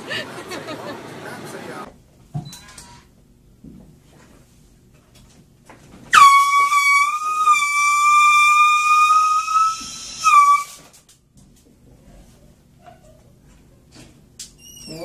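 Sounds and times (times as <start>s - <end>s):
air horn blasts: 6.1s - 10.8s.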